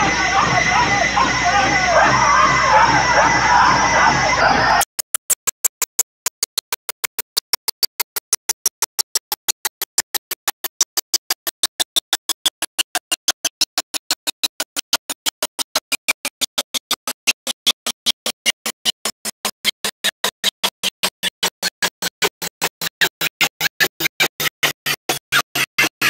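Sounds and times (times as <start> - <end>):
scratchy glitch chirps: 0.0 - 12.2.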